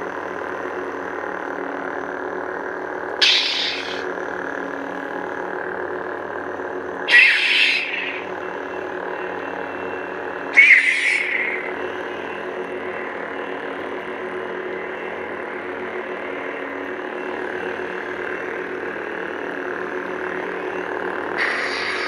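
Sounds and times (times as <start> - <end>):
lightsabers humming drone: 3.0 - 22.0
lightsaber effect sound: 3.2 - 4.1, 7.1 - 8.3, 10.5 - 12.4, 21.4 - 22.0.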